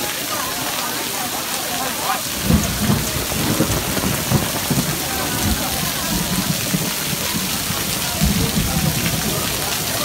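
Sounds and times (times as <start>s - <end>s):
heavy rain: 0.0s - 10.0s
water splashing onto stone paving: 0.0s - 10.0s.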